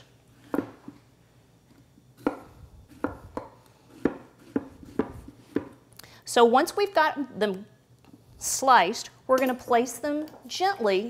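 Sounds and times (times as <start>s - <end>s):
knife chopping on wooden board: 2.2s - 5.8s.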